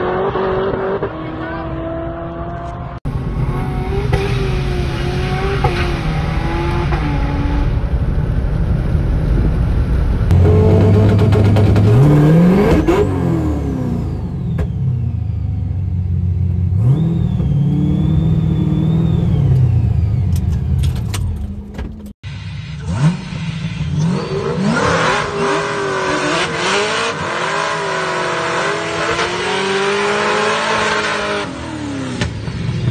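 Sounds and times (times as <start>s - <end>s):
car engine revving: 0.0s - 21.5s, 22.3s - 32.9s
supercharger whine: 0.0s - 32.9s.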